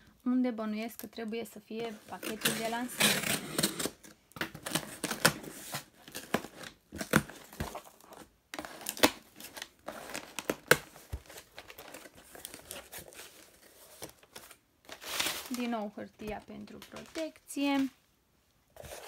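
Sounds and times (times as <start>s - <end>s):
packing tape ripping: 2.1s - 7.8s, 8.6s - 13.2s
packing paper crinkling: 4.6s - 18.0s.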